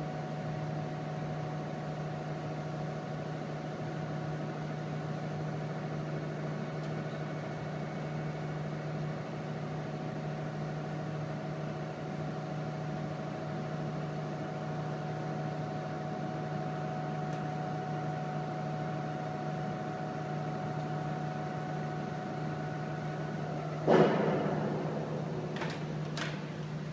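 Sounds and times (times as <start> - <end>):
machinery hum: 0.0 - 26.9
sharp ringing knock: 23.9 - 25.4.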